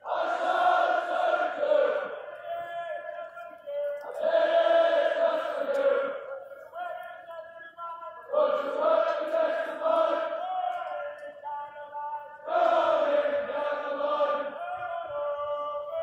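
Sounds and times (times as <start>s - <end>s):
group chanting in unison: 0.0s - 2.6s, 4.1s - 6.4s, 8.3s - 11.0s, 12.4s - 16.0s.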